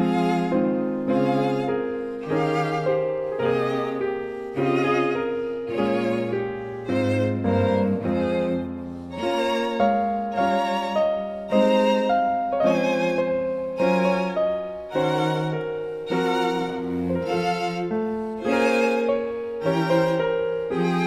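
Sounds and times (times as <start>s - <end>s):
lower string chords: 0.0s - 21.0s
violin melody with vibrato: 0.0s - 21.0s.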